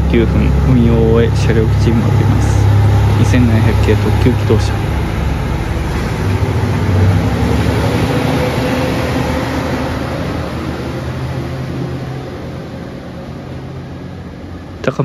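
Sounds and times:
diesel railcar engine hum: 0.0s - 15.0s.

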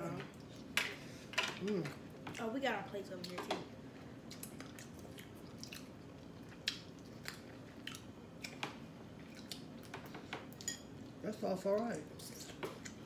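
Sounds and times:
chewing: 4.2s - 10.8s.

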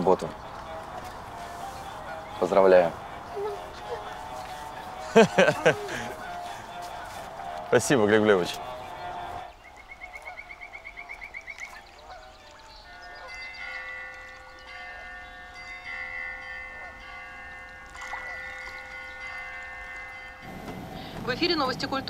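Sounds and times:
bird trill: 7.7s - 22.0s
bird chirps: 8.6s - 15.7s
soft chime-like music: 12.9s - 21.9s.

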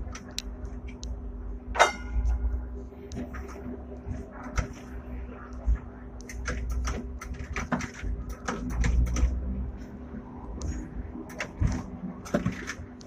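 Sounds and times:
faint steady hum: 0.0s - 8.5s
tram low rumble: 0.0s - 13.0s
tram rattling clicks and knocks: 1.7s - 9.5s, 10.6s - 13.0s.

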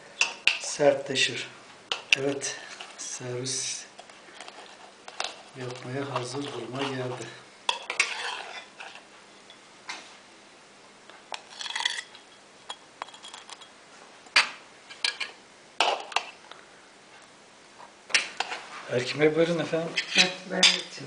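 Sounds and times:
cutlery scraping metal tray: 4.4s - 9.0s, 11.3s - 13.7s, 18.2s - 18.7s, 19.9s - 21.0s.

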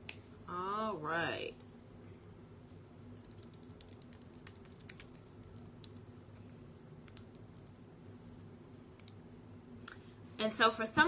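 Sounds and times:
person typing: 3.1s - 6.1s.

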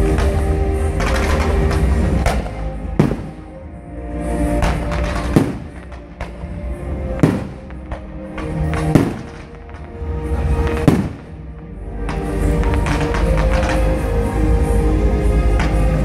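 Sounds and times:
music: 0.0s - 16.0s
fireworks bangs: 1.0s - 3.7s, 4.6s - 6.4s, 7.2s - 9.9s, 10.6s - 13.8s.

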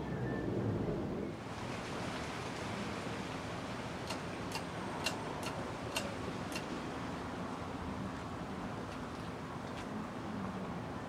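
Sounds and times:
light ticks: 4.0s - 6.7s.

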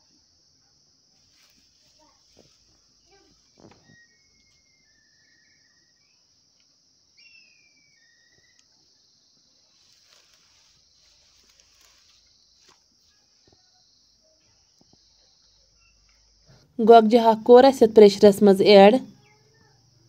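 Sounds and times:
rustling of leafy greens: 1.1s - 4.1s, 9.4s - 13.6s
bird chirps: 3.0s - 9.2s, 14.6s - 16.6s.

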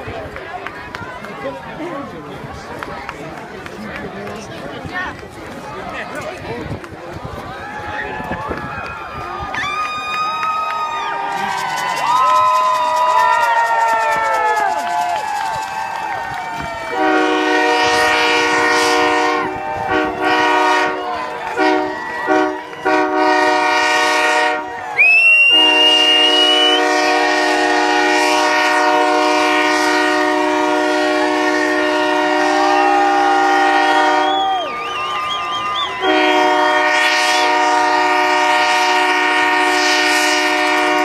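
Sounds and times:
crowd cheering: 0.0s - 41.0s
train air horn chord: 17.0s - 21.0s, 21.6s - 24.7s, 25.5s - 34.4s, 36.0s - 41.0s
rising whistle: 24.9s - 27.2s, 32.4s - 36.6s.

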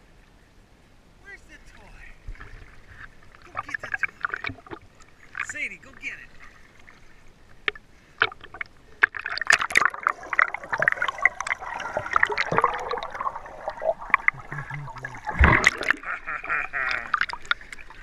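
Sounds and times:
water splashing and bubbling: 1.7s - 18.0s
underwater bubbles crackling: 2.2s - 5.6s, 6.3s - 18.0s
heavy splash: 9.2s - 16.2s.

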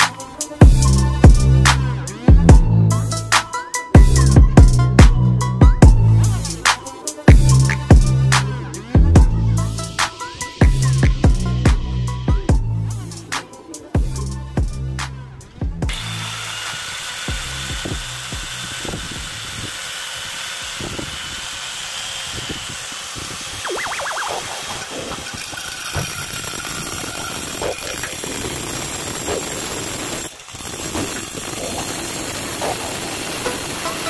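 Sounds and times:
angle grinder wet-cutting tile: 15.9s - 34.0s.

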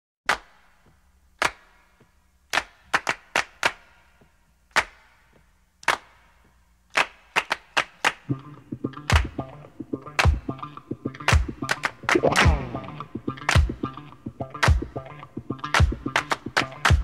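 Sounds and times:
sharp percussive hits: 8.3s - 17.0s.

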